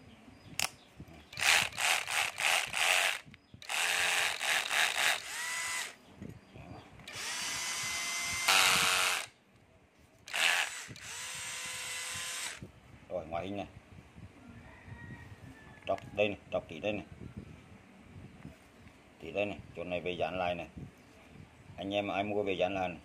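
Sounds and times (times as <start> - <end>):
cordless drill spinning: 1.3 - 6.0, 7.0 - 9.4, 10.3 - 12.7.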